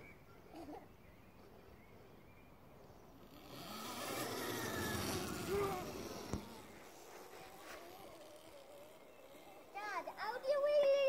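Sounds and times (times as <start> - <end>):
small dirt bike riding: 2.9 - 11.0.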